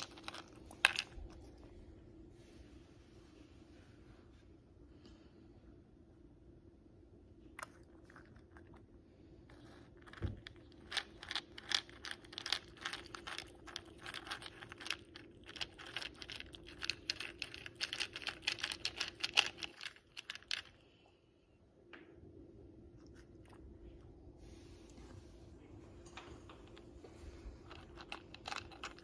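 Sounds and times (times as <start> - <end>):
cat crunching crackers: 0.0 - 1.7, 7.6 - 8.9, 9.5 - 21.0, 27.6 - 29.0.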